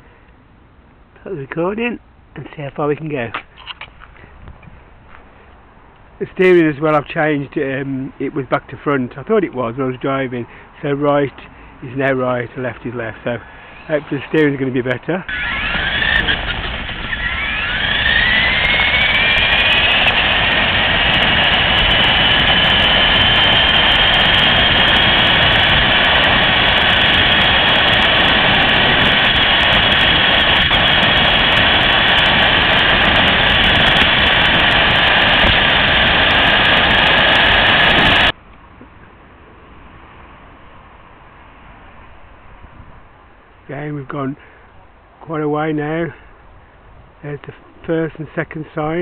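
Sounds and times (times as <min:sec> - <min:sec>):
rushing road noise: 0:00.0 - 0:49.0
electric motor whining: 0:13.6 - 0:14.6, 0:15.2 - 0:38.3.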